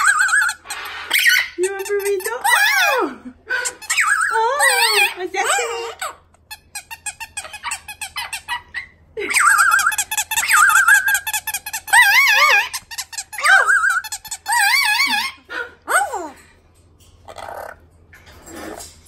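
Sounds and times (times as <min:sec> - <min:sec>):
rubber squeaky toy squeaking: 0:03.8 - 0:15.4.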